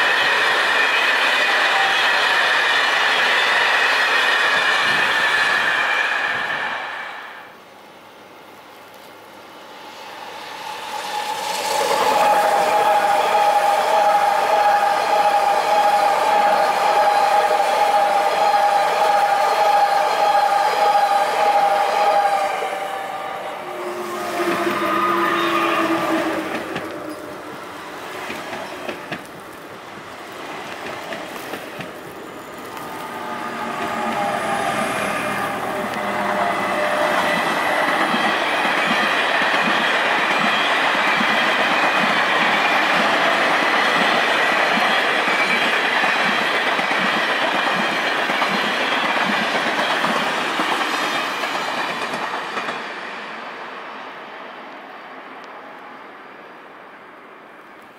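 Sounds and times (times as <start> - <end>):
train wheels rumbling on rails: 0.0 - 7.6, 8.8 - 54.0
train motors whining: 30.8 - 38.9
wheels clickety-clack: 37.2 - 52.8.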